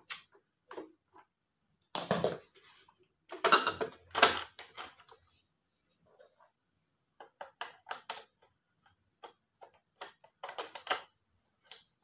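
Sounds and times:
plastic rattling on wooden floor: 0:03.3 - 0:05.2.

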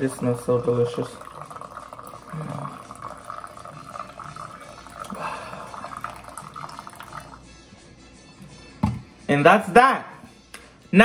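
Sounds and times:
coffee pouring into mug: 0:00.0 - 0:07.4
faint music: 0:00.0 - 0:11.0.

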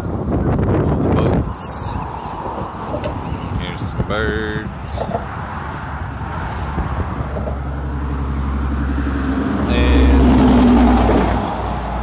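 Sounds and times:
truck diesel engine passing: 0:05.2 - 0:12.0.

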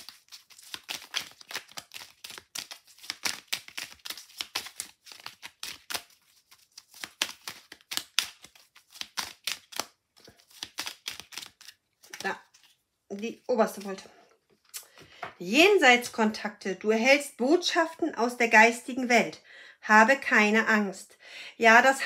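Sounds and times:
cards shuffled by hand: 0:00.0 - 0:14.0.

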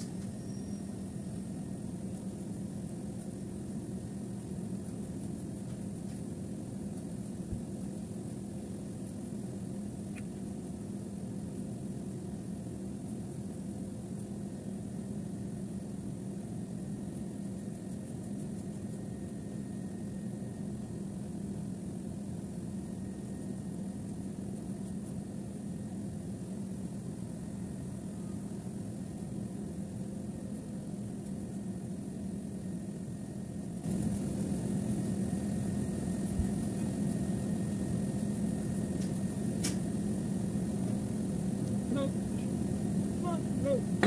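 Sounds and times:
machinery humming: 0:31.9 - 0:44.0.

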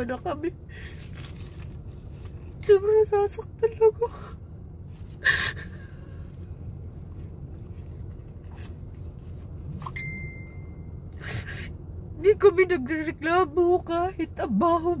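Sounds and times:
low car cabin hum: 0:00.0 - 0:15.0
thin high tone: 0:09.8 - 0:11.0.

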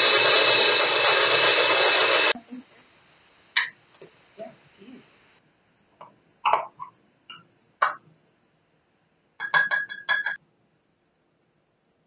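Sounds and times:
clinks on glass bowl: 0:09.4 - 0:10.4.

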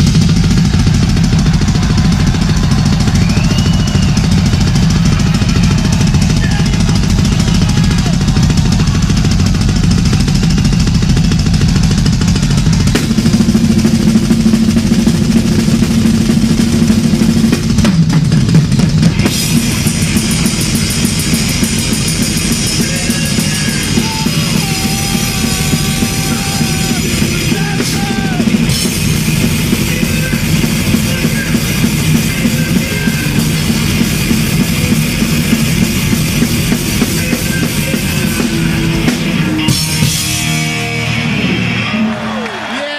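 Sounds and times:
fast drumming: 0:00.0 - 0:42.9
metal band playing live: 0:00.0 - 0:42.9
bending lead guitar lines: 0:19.1 - 0:42.3.

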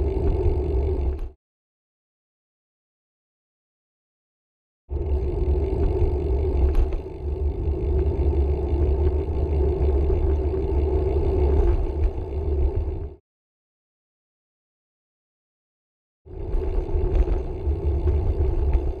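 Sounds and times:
wind buffeting and road rumble: 0:05.0 - 0:13.1, 0:16.4 - 0:19.0.

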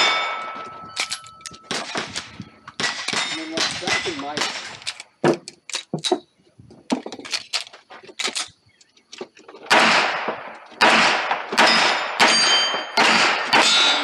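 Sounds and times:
steel plates ringing: 0:00.0 - 0:01.7, 0:11.6 - 0:14.0
handgun shots: 0:01.7 - 0:04.8, 0:09.7 - 0:14.0.

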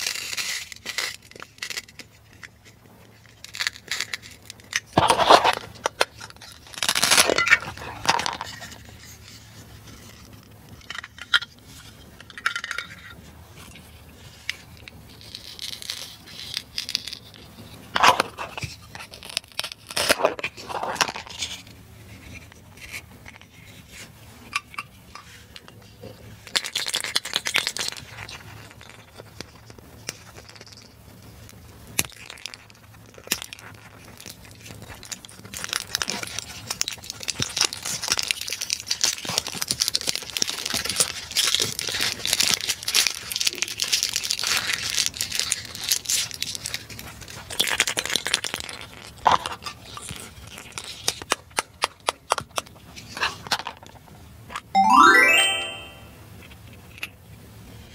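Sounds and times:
plastic wrap crinkling: 0:03.2 - 0:10.2, 0:34.1 - 0:49.2.

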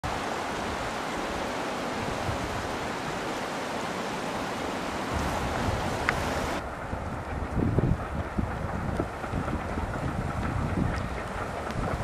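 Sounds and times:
flowing water rushing: 0:00.0 - 0:12.0.

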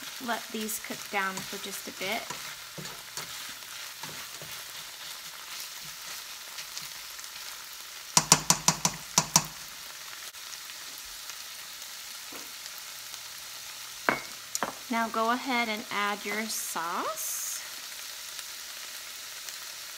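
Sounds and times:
food sizzling in frying pan: 0:00.0 - 0:19.9
spatula knocking against pan: 0:08.2 - 0:09.6.

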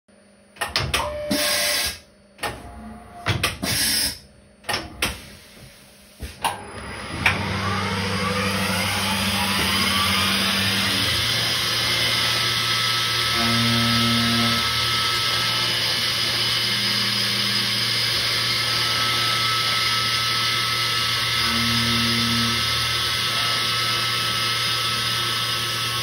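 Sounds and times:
milling machine cutting metal: 0:06.4 - 0:26.0.

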